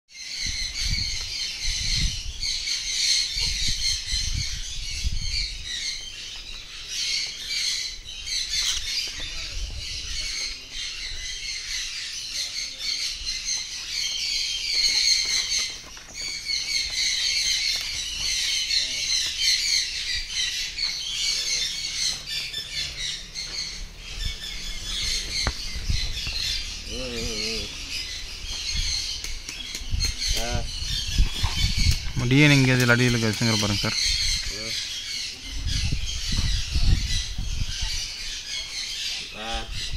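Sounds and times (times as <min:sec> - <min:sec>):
parrots chattering harshly: 0:16.5 - 0:39.9.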